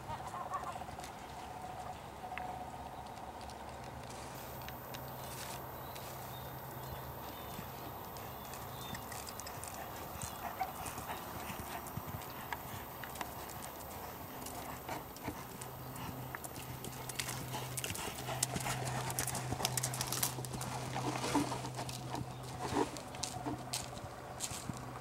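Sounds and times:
horse hoofbeats on sand: 6.8s - 25.0s.

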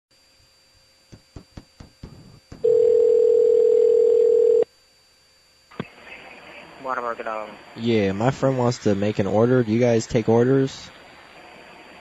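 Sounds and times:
telephone ringback tone: 2.6s - 4.7s.

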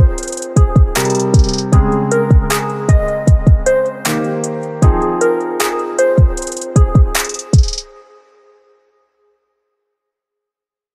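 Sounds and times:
background music with a beat: 0.0s - 8.6s.

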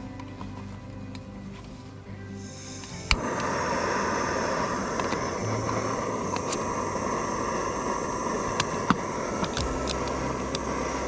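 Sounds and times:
gas burner hissing: 2.2s - 11.0s.

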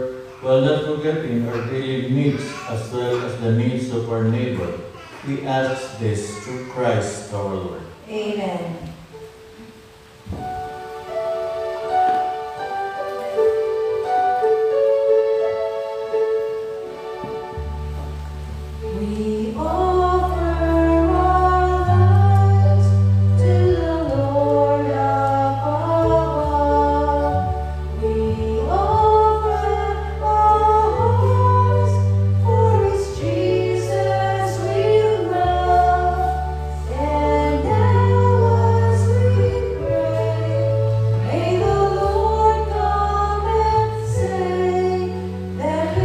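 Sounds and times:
keyboard accompaniment: 8.8s - 46.0s
choir singing a hymn: 15.6s - 46.0s.

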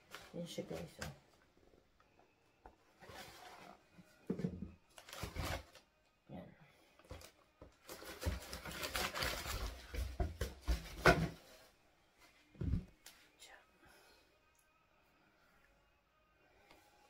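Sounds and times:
tissue paper rustling: 4.9s - 5.8s, 7.8s - 11.0s.

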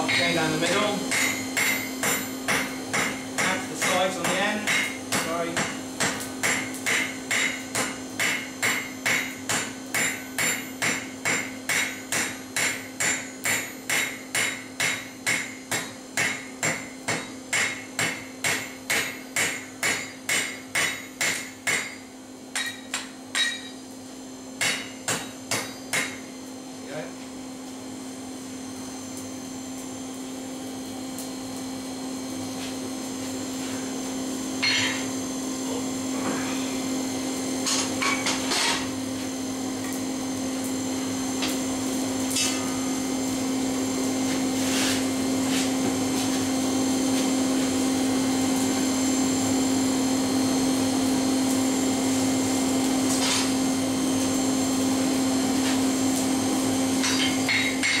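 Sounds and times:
hammer ringing on anvil: 0.0s - 23.8s, 24.6s - 26.2s, 34.6s - 35.1s, 57.0s - 58.0s
steady hum: 0.0s - 58.0s.

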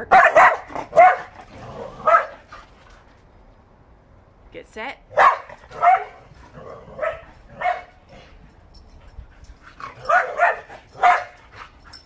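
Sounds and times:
dog barking excitedly: 0.0s - 2.6s, 5.1s - 8.2s, 9.8s - 11.8s.

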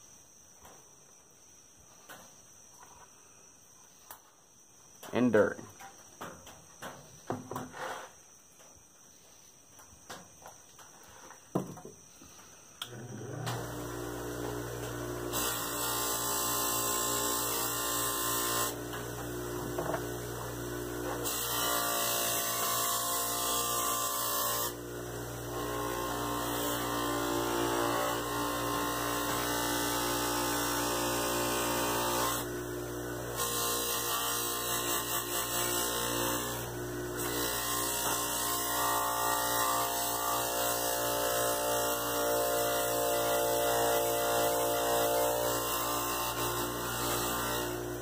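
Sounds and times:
bench buffer humming: 13.2s - 16.1s, 18.1s - 21.7s.

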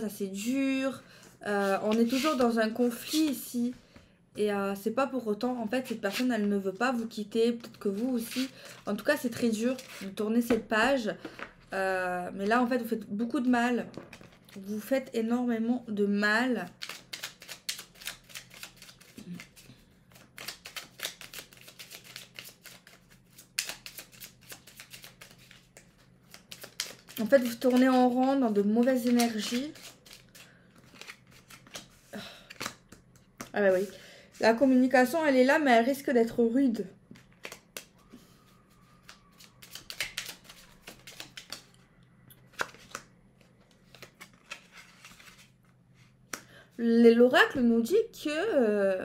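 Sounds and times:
cards being shuffled: 1.6s - 3.4s, 9.4s - 10.6s, 13.9s - 14.6s, 16.7s - 33.9s, 37.1s - 37.9s, 38.8s - 41.7s, 42.4s - 45.5s.

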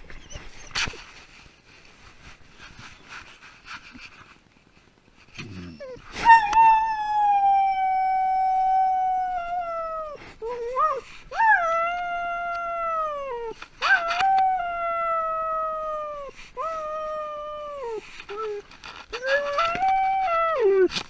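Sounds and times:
dog whining: 0.0s - 1.0s, 5.4s - 21.0s
scuffling and rustling: 0.0s - 7.0s, 16.5s - 21.0s.

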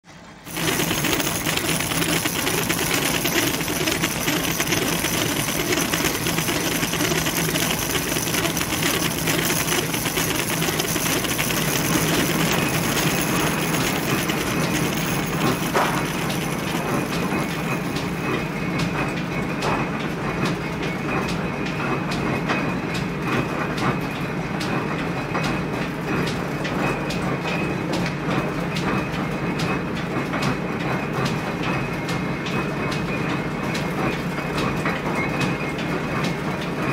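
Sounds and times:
machinery clattering: 0.4s - 19.8s.

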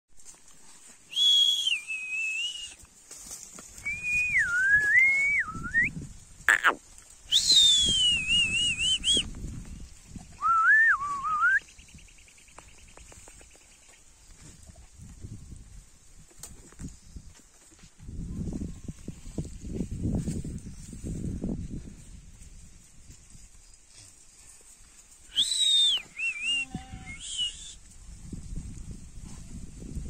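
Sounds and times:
person whistling: 1.1s - 2.8s, 3.8s - 5.9s, 7.3s - 9.3s, 10.4s - 11.6s, 25.3s - 27.8s.

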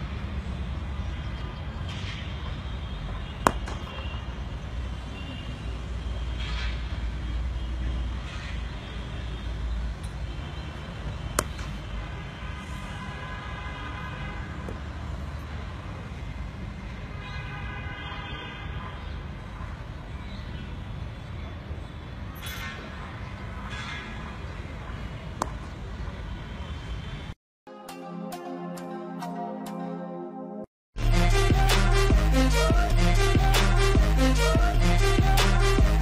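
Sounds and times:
cricket bat striking ball: 3.4s - 4.1s, 11.4s - 11.8s
horn blasts: 31.0s - 36.0s.

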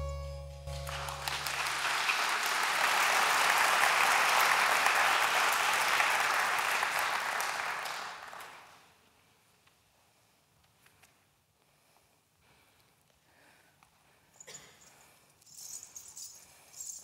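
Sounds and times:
low ringing music note: 0.0s - 1.5s
audience applauding: 0.7s - 8.9s.

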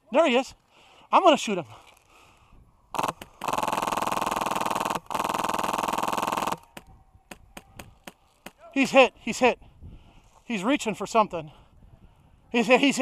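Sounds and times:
airsoft rifle automatic fire: 3.0s - 6.8s.

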